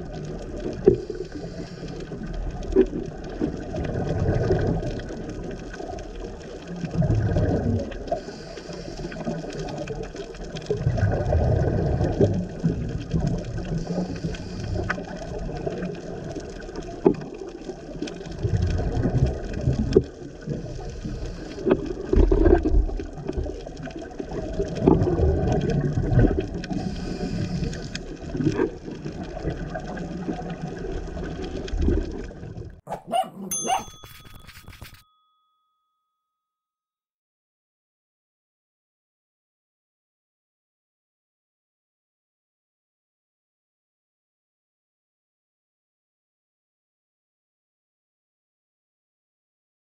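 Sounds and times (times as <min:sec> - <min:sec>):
scuba regulator breathing: 0:01.0 - 0:02.2, 0:08.1 - 0:09.6, 0:13.7 - 0:15.1, 0:20.8 - 0:21.8, 0:26.7 - 0:28.0
short chime tones: 0:33.4 - 0:36.2.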